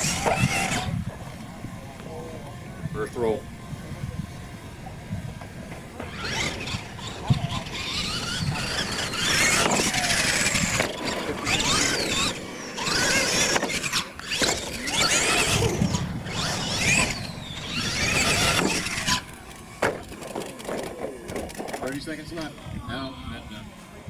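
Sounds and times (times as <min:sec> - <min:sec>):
toy truck electric motor whining: 0:00.0 - 0:01.0, 0:05.9 - 0:22.2.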